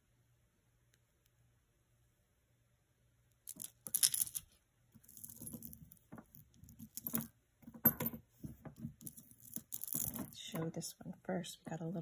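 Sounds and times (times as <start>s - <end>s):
beads clicking and rattling: 3.4s - 8.0s, 8.8s - 10.6s.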